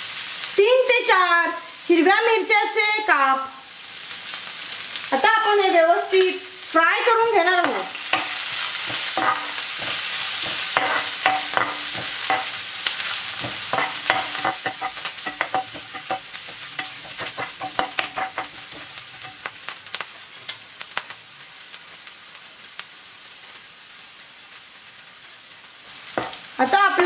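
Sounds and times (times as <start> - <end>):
food sizzling in hot oil: 0.0 - 27.0
metal spoon scraping pan: 7.6 - 19.5.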